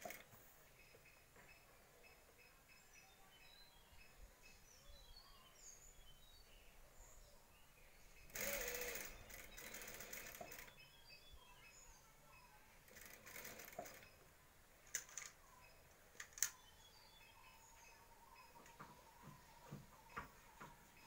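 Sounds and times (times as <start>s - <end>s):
sewing machine stitching: 0.0s - 0.4s, 8.3s - 10.8s, 12.9s - 14.2s
sharp clicks: 0.0s - 0.4s, 8.3s - 10.8s, 14.8s - 15.4s, 16.1s - 16.6s.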